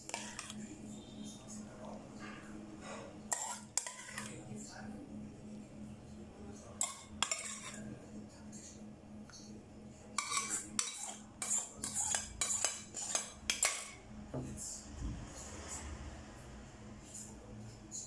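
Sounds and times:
metal spoon clinking on pot: 0:00.0 - 0:00.6, 0:03.3 - 0:04.4, 0:06.8 - 0:07.8, 0:10.2 - 0:14.0.

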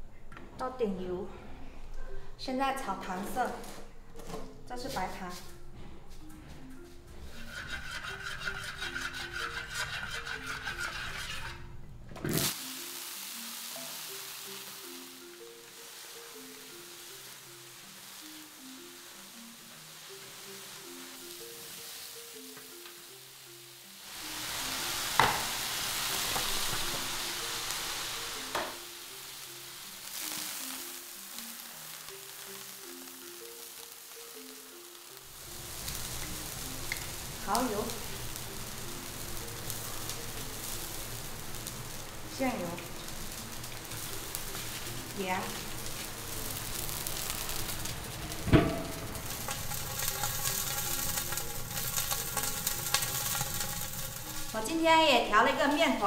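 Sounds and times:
potatoes sizzling in hot oil: 0:12.3 - 0:56.0
metal lid clanking: 0:48.3 - 0:54.5
liquid poured into hot wok: 0:48.4 - 0:54.6.

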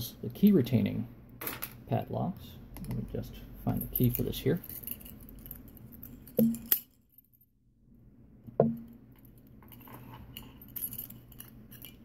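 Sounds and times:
keys jingling against padlock: 0:03.7 - 0:07.0, 0:10.3 - 0:12.0.

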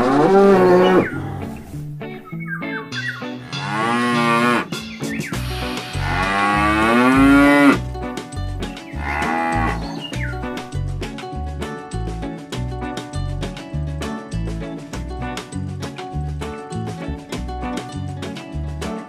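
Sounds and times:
cows mooing: 0:00.0 - 0:01.6, 0:03.5 - 0:04.7, 0:05.4 - 0:07.8, 0:08.9 - 0:10.1
background music with bass line: 0:00.0 - 0:19.0.

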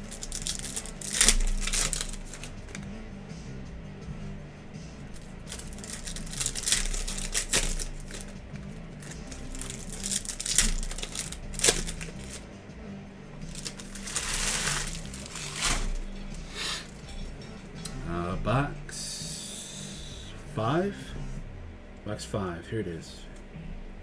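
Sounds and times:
foil packs tearing and crinkling: 0:00.0 - 0:02.8, 0:05.2 - 0:08.4, 0:09.0 - 0:12.4, 0:13.5 - 0:16.0
faint background music: 0:00.0 - 0:24.0.

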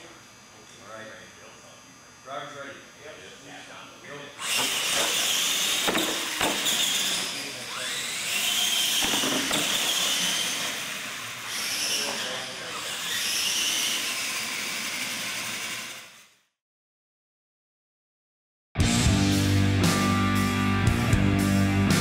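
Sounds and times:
rc truck electric motors whining: 0:04.4 - 0:16.5.

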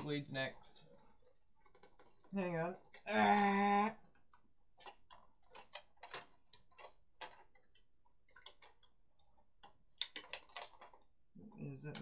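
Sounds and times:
plastic pieces clicking: 0:04.1 - 0:11.1.

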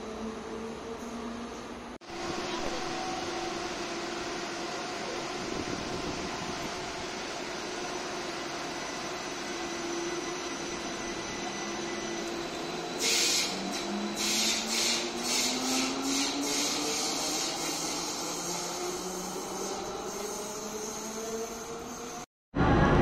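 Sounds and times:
tram electric drive whining: 0:00.0 - 0:23.0
loud hissing bursts: 0:13.0 - 0:18.4.

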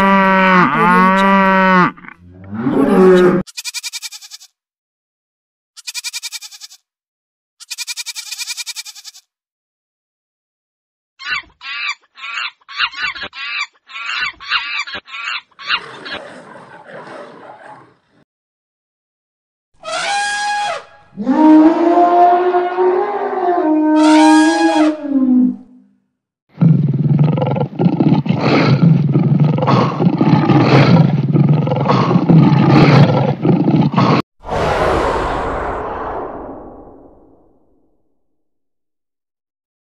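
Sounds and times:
lions roaring: 0:00.0 - 0:03.4, 0:15.8 - 0:18.0, 0:26.6 - 0:34.2
rumbling whoosh: 0:34.4 - 0:37.8.

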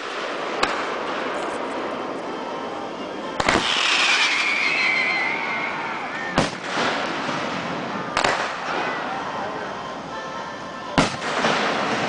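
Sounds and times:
firework shells bursting: 0:03.4 - 0:05.1
firework whistle falling in pitch: 0:03.4 - 0:07.1.

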